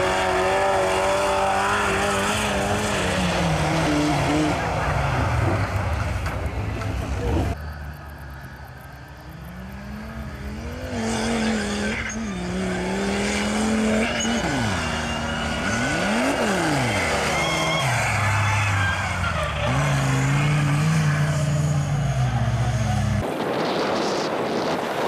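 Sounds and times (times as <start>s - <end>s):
engine revving hard: 0.0s - 5.6s, 9.4s - 23.2s.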